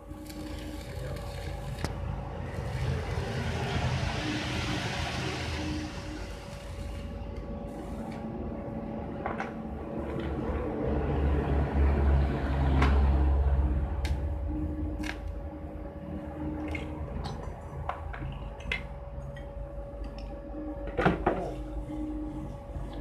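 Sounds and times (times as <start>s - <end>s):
welding machine hum: 0.0s - 17.9s.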